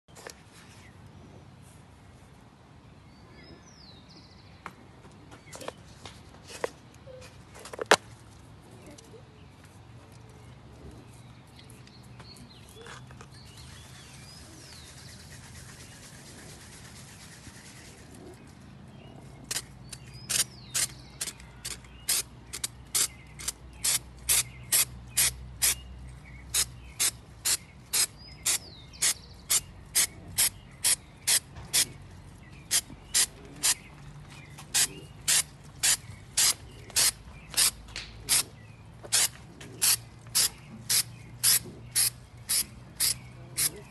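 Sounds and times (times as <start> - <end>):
short sharp spray bursts: 23.0 - 25.8, 26.5 - 31.9, 34.7 - 38.5, 39.1 - 43.7.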